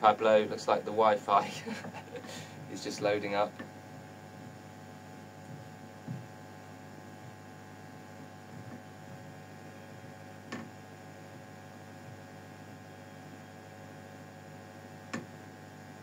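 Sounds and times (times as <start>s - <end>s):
guitar amplifier hum: 0.0s - 16.0s
soft thump: 6.0s - 6.3s.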